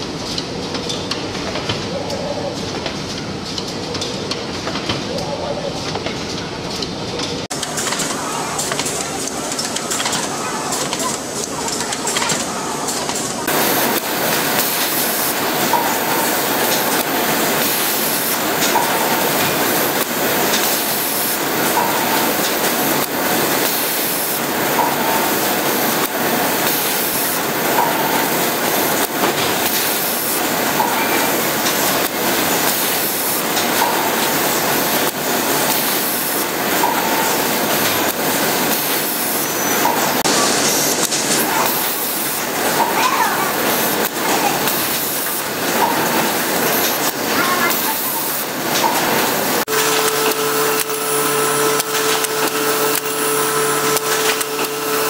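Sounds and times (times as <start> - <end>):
machine clatter: 0.0 - 5.2, 5.8 - 55.0
compressed-air hiss: 13.5 - 42.7.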